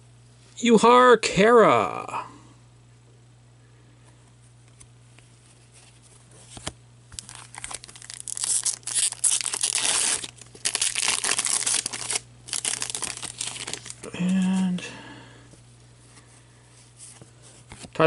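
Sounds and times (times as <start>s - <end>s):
steady low hum: 0.0s - 18.0s
wrapper crinkling and tearing: 6.6s - 14.6s.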